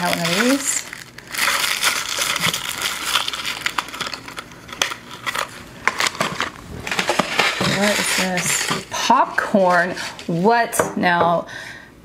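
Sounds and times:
plastic packaging crinkling: 0.0s - 10.4s.

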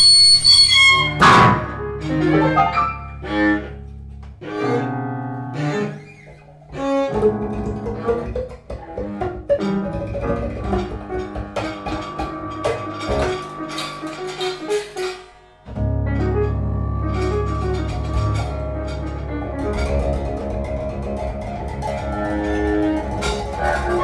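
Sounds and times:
bowed cello short notes: 0.0s - 24.0s
low held note: 15.7s - 21.6s.

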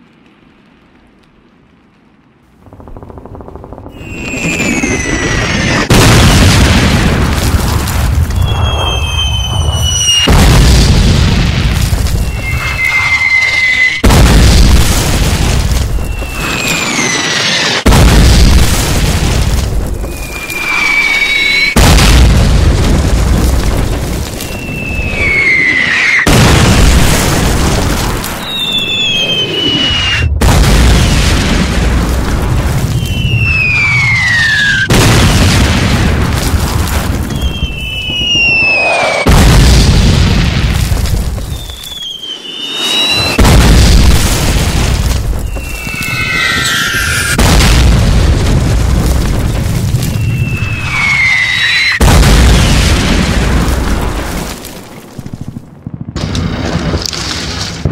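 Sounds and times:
deep explosion rumble: 2.5s - 42.1s, 42.7s - 57.9s
shell whistle falling in pitch: 12.3s - 14.0s, 45.5s - 47.4s.

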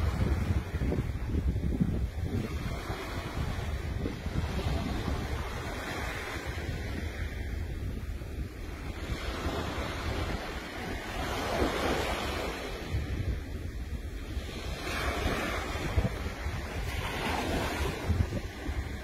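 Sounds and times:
surf washing on beach: 0.0s - 19.0s
wind buffeting microphone: 0.0s - 19.0s.

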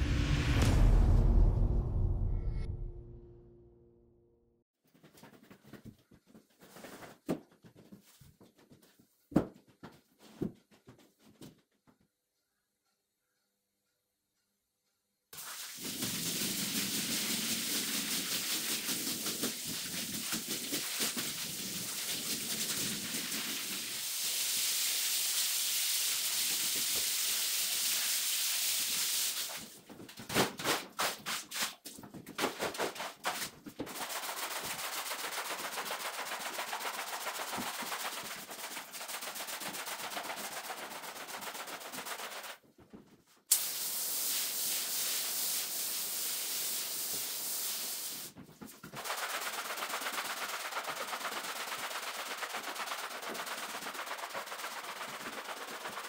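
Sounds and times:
scrubbing wet carpet: 15.4s - 24.0s, 32.7s - 42.6s, 47.9s - 56.0s
water spray hissing: 15.4s - 29.7s, 43.5s - 48.3s.

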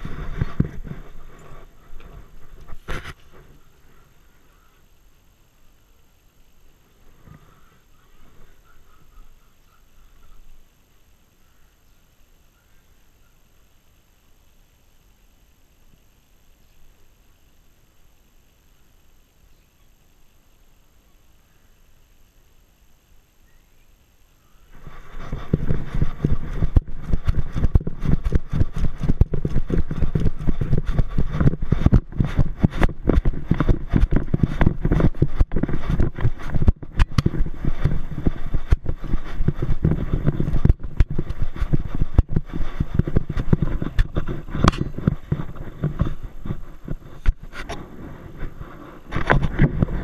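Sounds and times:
camera mount rubbing rumble: 0.0s - 3.6s, 24.8s - 50.0s.

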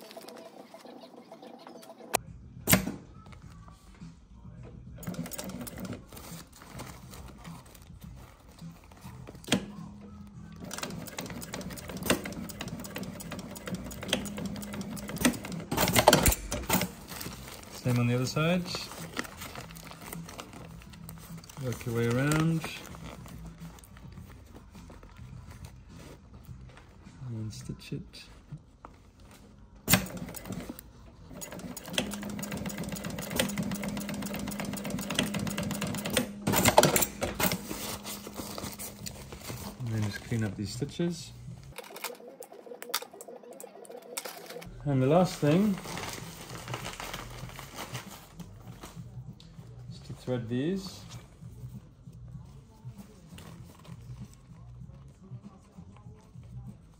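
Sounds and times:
sewing machine stitching: 5.0s - 7.1s, 10.6s - 19.5s, 29.9s - 39.8s.

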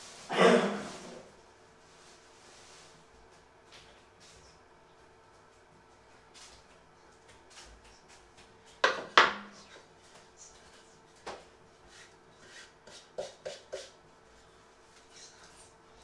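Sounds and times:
kitchen things knocking: 8.8s - 9.5s.

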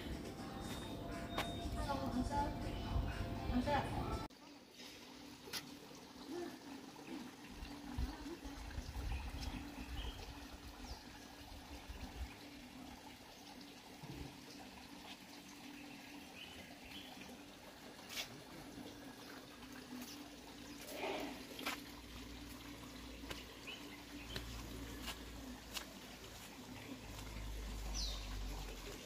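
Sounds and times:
water trickling: 0.0s - 29.0s.

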